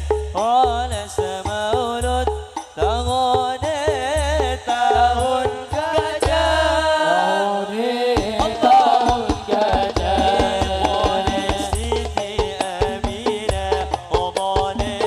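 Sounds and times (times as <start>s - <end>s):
frame drum hand percussion: 0.0s - 6.9s, 8.1s - 15.0s
person singing with vibrato: 0.0s - 15.0s
deep drum booms: 8.2s - 15.0s.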